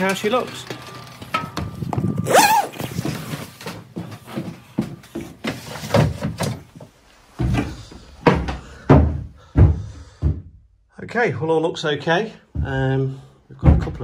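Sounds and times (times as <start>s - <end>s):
footsteps on boat deck: 2.8s - 5.7s.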